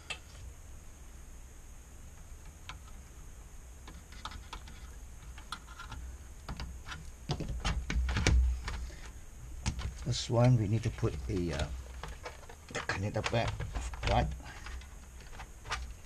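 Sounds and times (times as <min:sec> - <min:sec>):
knocks of handling: 0:03.9 - 0:16.0.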